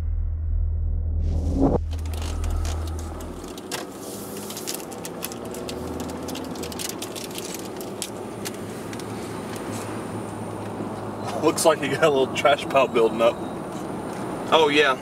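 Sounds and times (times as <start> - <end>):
deep boom: 0.0 - 3.5
car engine and road noise: 0.0 - 15.0
small clicks and rattles: 1.9 - 9.6.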